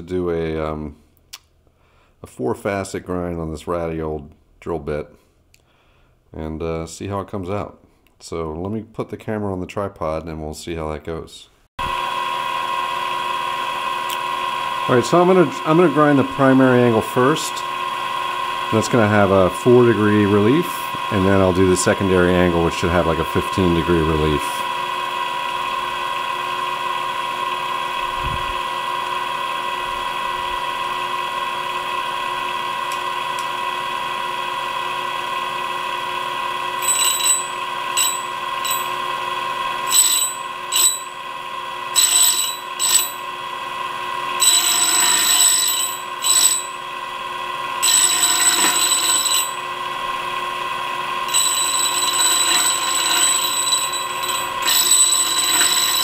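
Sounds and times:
grinder spindle whining: 11.8s - 56.0s
drill bit grinding bursts: 12.5s - 56.0s.

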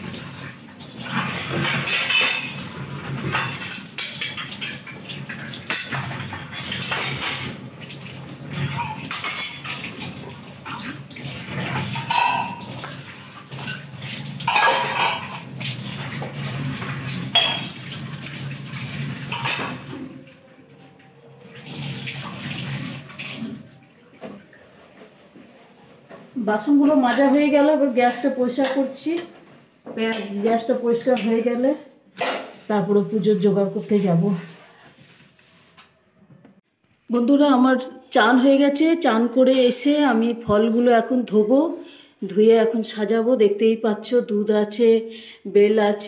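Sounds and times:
tap water running into sink: 0.0s - 24.6s
metal bowls and pots clattering: 0.9s - 21.8s, 24.1s - 29.3s, 29.9s - 33.8s
utensils being scrubbed: 1.1s - 7.6s, 32.2s - 35.9s.

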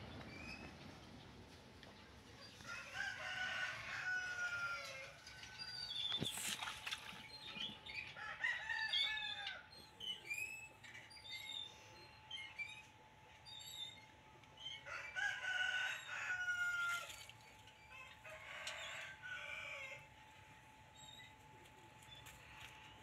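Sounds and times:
rooster crowing: 2.6s - 5.3s, 8.2s - 9.7s, 14.8s - 17.1s, 17.9s - 20.0s.

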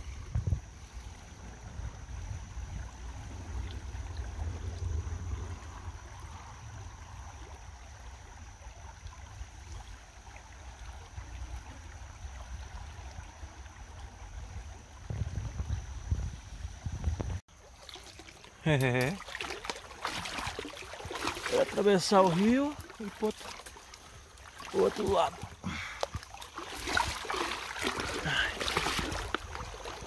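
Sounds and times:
shallow river water running: 0.0s - 30.0s.

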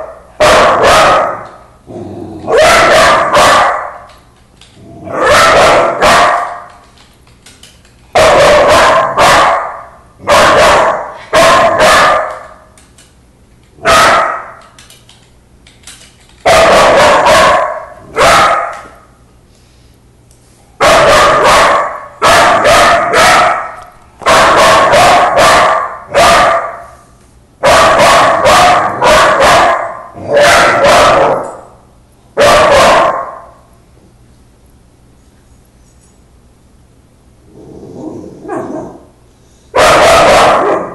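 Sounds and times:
young dog barking loudly: 0.0s - 1.6s, 2.5s - 4.1s, 5.1s - 6.7s, 8.2s - 12.6s, 13.8s - 14.6s, 16.4s - 19.0s, 20.8s - 26.9s, 27.6s - 31.6s, 32.4s - 33.5s, 39.7s - 40.9s.

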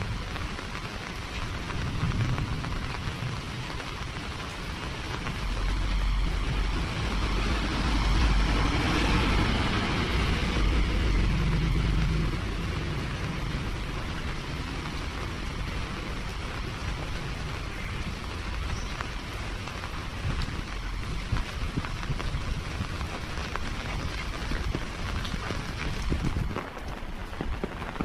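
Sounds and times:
rain on pavement: 0.0s - 28.0s
low rumble: 1.4s - 28.0s.

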